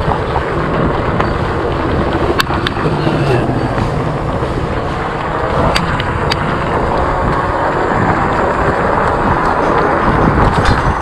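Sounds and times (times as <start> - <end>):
road noise: 0.0 - 11.0
wind buffeting microphone: 0.0 - 11.0.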